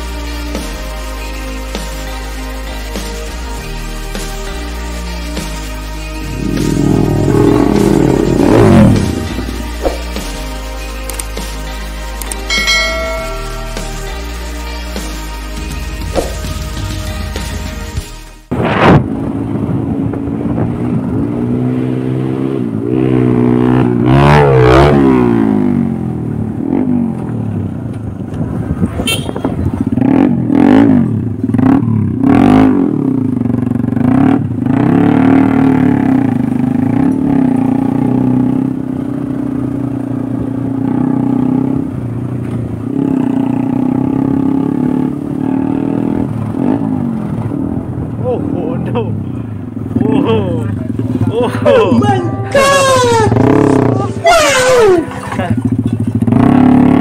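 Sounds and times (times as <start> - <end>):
motorcycle engine running: 6.2 - 10.3, 19.1 - 48.2, 49.3 - 57.0.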